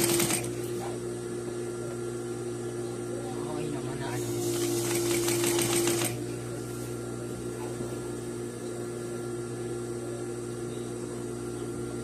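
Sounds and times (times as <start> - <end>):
sewing machine stitching: 0.0 - 0.6, 4.3 - 6.2
steady hum: 0.0 - 12.0.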